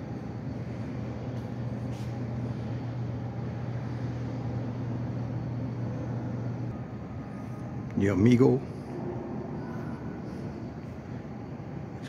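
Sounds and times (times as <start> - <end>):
low machinery hum: 0.0 - 12.0.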